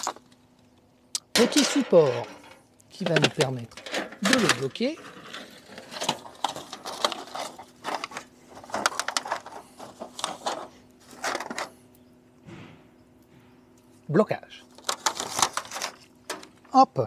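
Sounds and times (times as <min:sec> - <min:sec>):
foil tray and paper crinkling: 0:01.4 - 0:11.8, 0:14.6 - 0:16.9.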